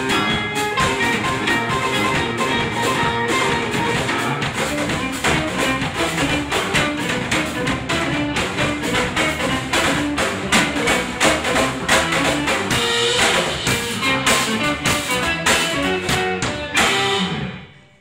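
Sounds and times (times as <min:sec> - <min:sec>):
live rock trio playing: 0:00.0 - 0:18.0.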